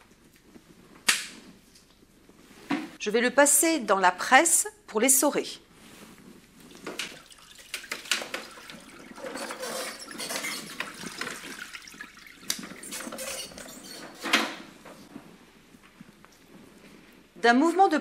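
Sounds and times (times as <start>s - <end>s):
water splashing into bucket: 6.6s - 14.3s.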